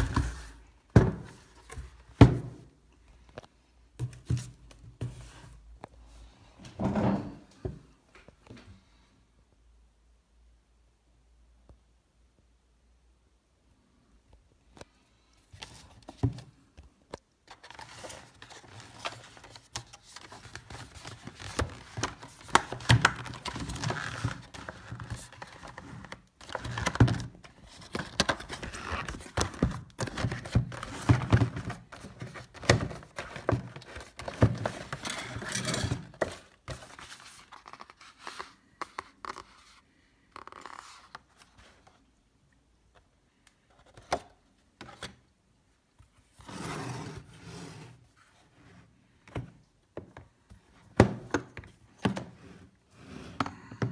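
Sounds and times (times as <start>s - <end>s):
cardboard scraping and rustling: 46.4s - 48.5s.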